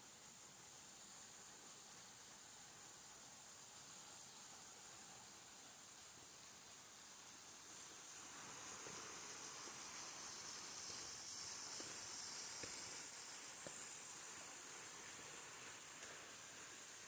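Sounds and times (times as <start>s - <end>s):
faint footsteps: 11.7s - 14.5s.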